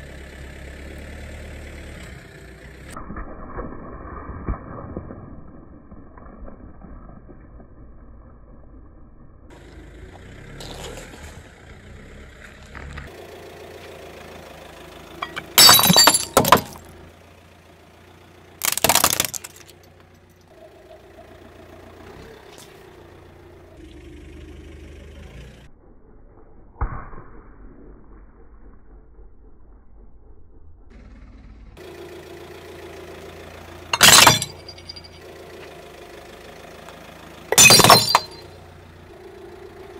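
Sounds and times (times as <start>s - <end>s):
car engine hum: 0.0s - 3.0s, 9.1s - 25.8s, 30.3s - 39.9s
glass shattering under tyre: 10.6s - 11.4s, 15.2s - 17.0s, 18.6s - 20.0s, 33.9s - 35.3s, 37.5s - 38.6s.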